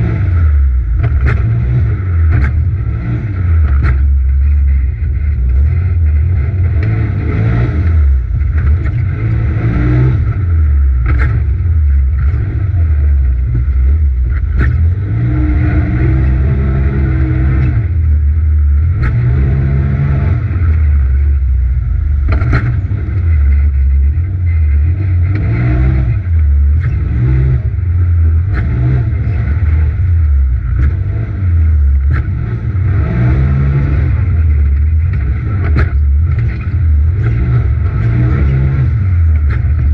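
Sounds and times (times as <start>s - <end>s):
engine revving from inside cab: 0.0s - 39.9s
chassis knocks: 22.2s - 23.9s.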